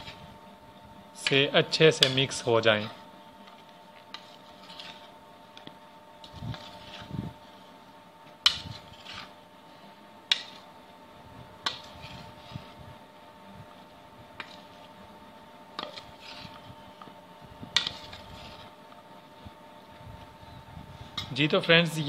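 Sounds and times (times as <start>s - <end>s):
faint steady hum: 0.0s - 22.0s
spoon scraping in bowl: 2.8s - 5.2s, 6.2s - 7.2s, 8.5s - 9.4s, 11.6s - 12.8s, 15.8s - 16.8s, 17.7s - 18.9s.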